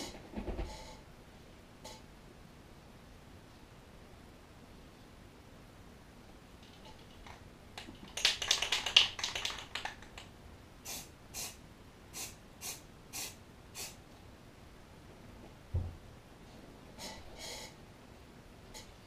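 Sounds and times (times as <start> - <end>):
spray paint can hissing: 10.9 - 11.6, 12.2 - 14.0.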